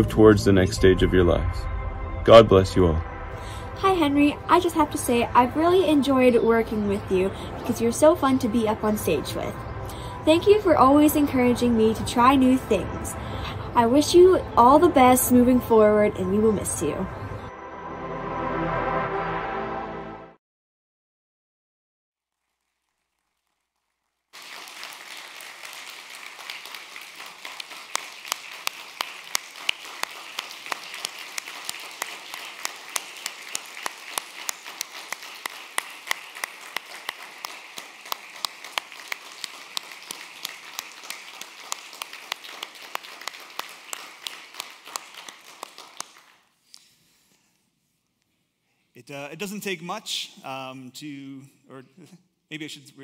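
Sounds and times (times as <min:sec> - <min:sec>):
congregation applauding: 0:24.3 - 0:46.6.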